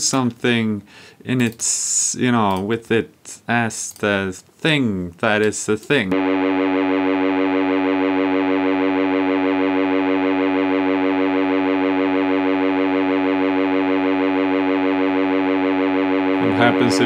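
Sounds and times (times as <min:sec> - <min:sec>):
toy organ buzzy note: 0:06.2 - 0:17.0.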